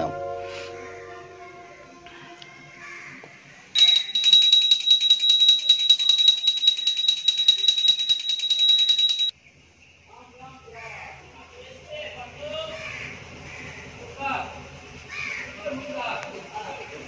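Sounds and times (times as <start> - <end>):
hand bell ringing rapidly: 3.8 - 9.3.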